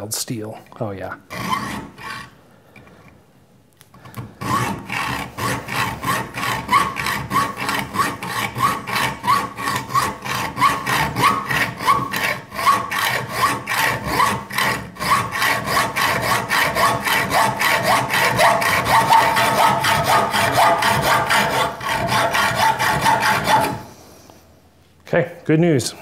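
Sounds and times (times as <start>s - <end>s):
hacksaw cutting steel rod: 1.3s - 2.3s, 4.2s - 23.9s.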